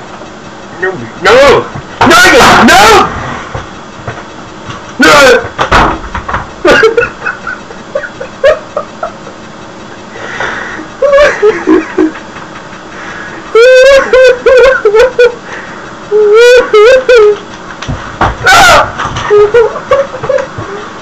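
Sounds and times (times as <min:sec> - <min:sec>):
person laughing loudly: 0:06.6 - 0:09.5, 0:10.8 - 0:17.8, 0:18.4 - 0:21.0.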